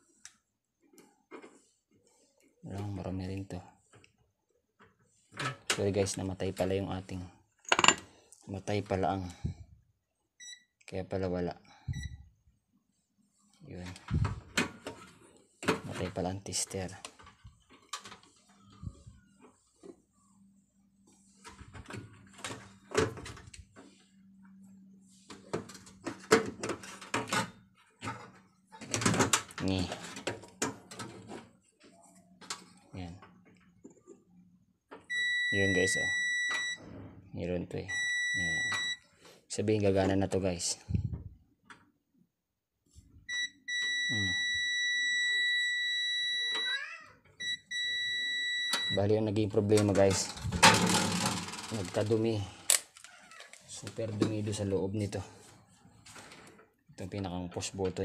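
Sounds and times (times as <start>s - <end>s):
multimeter continuity beep: 10.4s - 10.7s, 11.9s - 12.2s, 35.1s - 36.8s, 37.9s - 39.0s, 43.3s - 46.7s, 47.4s - 49.0s.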